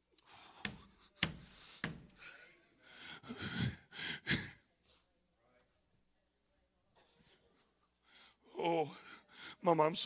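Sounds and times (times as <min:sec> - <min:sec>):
man breathing hard: 0:00.2 - 0:04.6.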